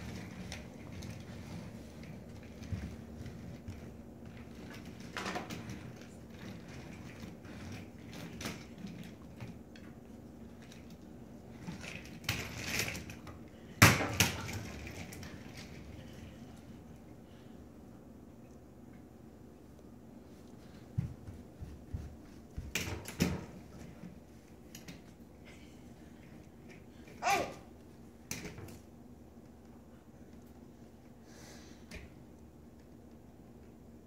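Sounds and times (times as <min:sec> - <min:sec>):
toy stroller rolling and rattling: 0:00.0 - 0:13.3, 0:14.2 - 0:16.1.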